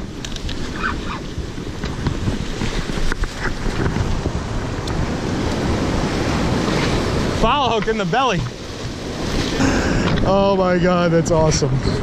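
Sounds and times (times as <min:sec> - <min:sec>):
surf breaking on rocks: 0:00.0 - 0:11.1
wind buffeting microphone: 0:00.0 - 0:12.0.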